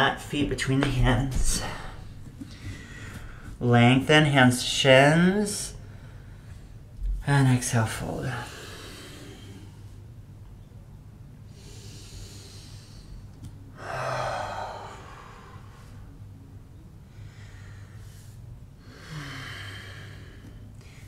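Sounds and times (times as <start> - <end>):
person breathing: 1.5 - 3.6, 8.4 - 10.0, 11.5 - 16.2, 17.0 - 21.0.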